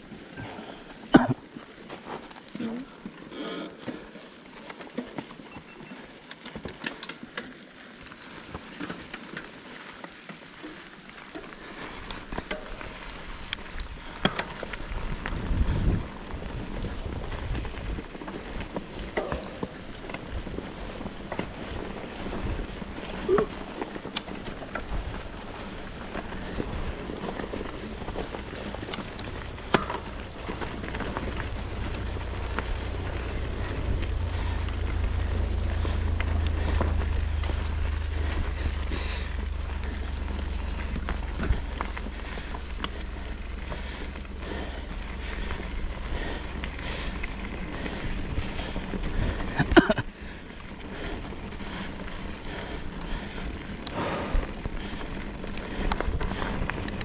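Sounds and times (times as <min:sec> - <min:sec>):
bike rattling over bumps: 0:00.0 - 0:57.0
tyres on dirt: 0:00.0 - 0:57.0
wind rumble on microphone: 0:13.8 - 0:23.5, 0:24.5 - 0:51.8
wind buffeting microphone: 0:14.7 - 0:18.2.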